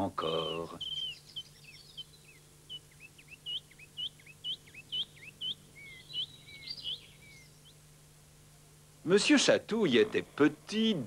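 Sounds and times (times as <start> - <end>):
birds chirping: 0.0 - 8.0.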